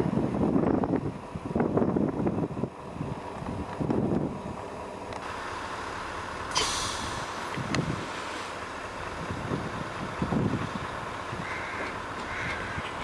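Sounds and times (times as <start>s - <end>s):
wind buffeting microphone: 0.0s - 4.8s, 6.9s - 13.0s
sharp hiss: 6.5s - 8.6s.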